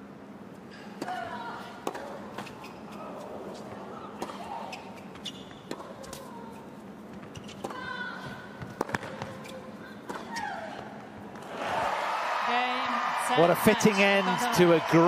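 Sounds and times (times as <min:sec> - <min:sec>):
ball bouncing on court: 0:05.0 - 0:06.3, 0:07.1 - 0:11.8
tennis ball hits from rackets: 0:08.6 - 0:10.4.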